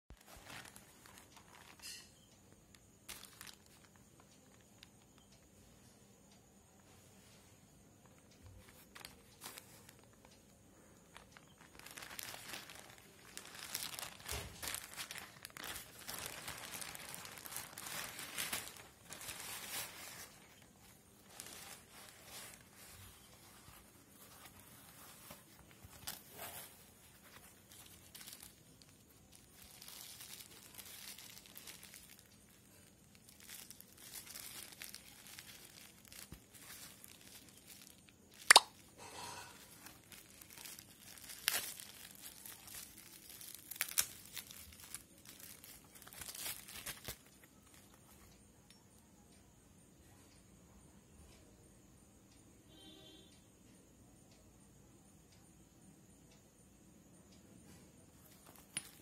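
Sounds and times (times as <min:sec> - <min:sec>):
bubble wrap crinkling: 0:00.1 - 0:05.4, 0:08.4 - 0:48.4, 0:58.2 - 0:59.0
plastic bag tearing: 0:11.5 - 0:20.6, 0:26.0 - 0:38.8, 0:39.5 - 0:47.3
sharp snaps: 0:38.3 - 0:38.9.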